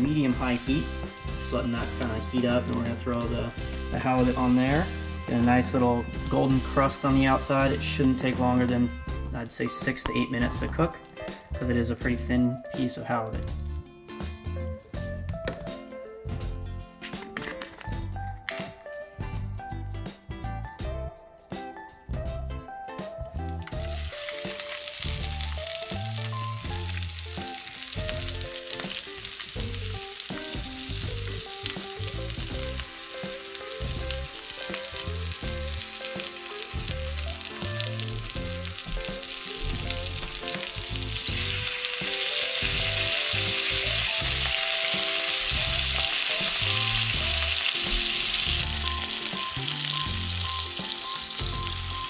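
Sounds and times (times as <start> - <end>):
fish sizzling in a frying pan: 0.0 - 8.6, 23.7 - 52.0
background music with bass line: 0.0 - 52.0.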